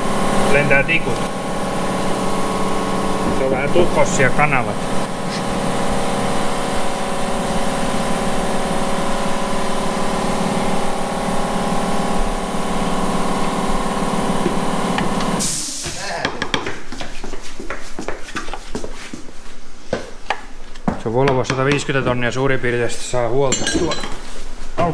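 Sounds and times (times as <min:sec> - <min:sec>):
machine hum with held tones: 0:00.0 - 0:15.4
hand tools tapping on metal: 0:23.5 - 0:24.2.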